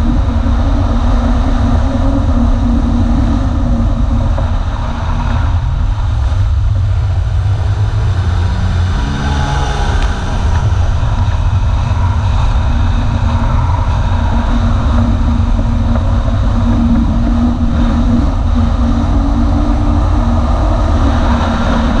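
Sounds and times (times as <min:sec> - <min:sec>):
jet ski engine running: 0:00.0 - 0:22.0
wind rush over microphone: 0:00.0 - 0:22.0.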